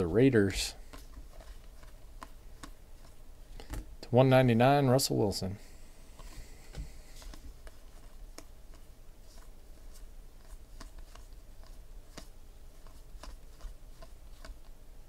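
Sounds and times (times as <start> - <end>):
trading cards flicked by hand: 0.8 - 3.8, 6.2 - 14.8.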